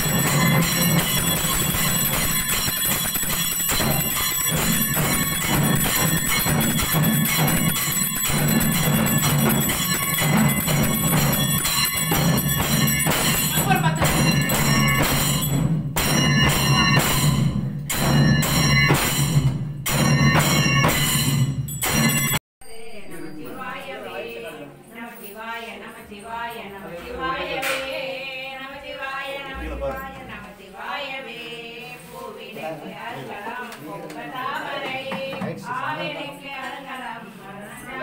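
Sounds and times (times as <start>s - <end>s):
low pulsing drumbeat: 0.0s - 21.3s
temple bells ringing: 0.0s - 23.0s.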